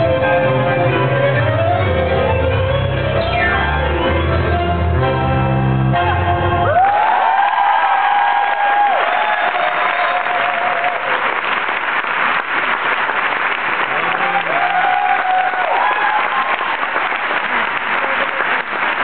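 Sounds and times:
audience applauding: 6.6 - 19.0.

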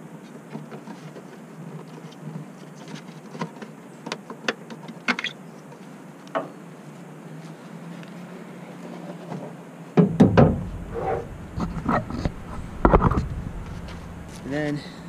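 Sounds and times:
faint low hum: 10.0 - 15.0.

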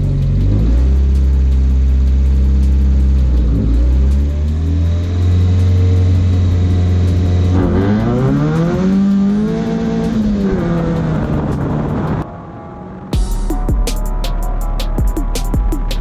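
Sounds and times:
rally car engine accelerating: 0.0 - 13.2.

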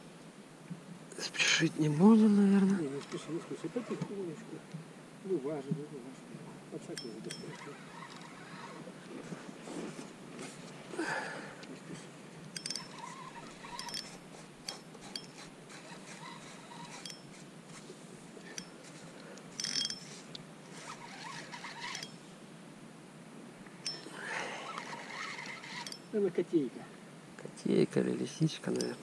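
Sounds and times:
fishing reel cranking: 7.0 - 8.8, 12.5 - 17.4, 18.4 - 22.2, 23.8 - 26.1, 28.8 - 29.0.

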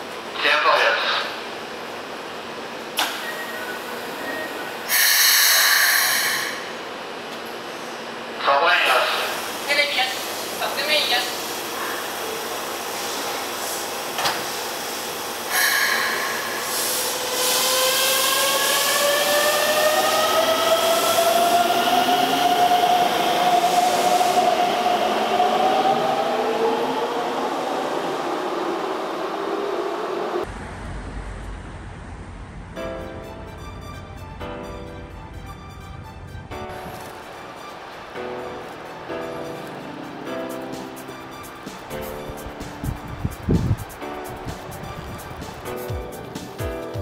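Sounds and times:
compressed air hiss: 4.9 - 6.8, 12.9 - 17.7.

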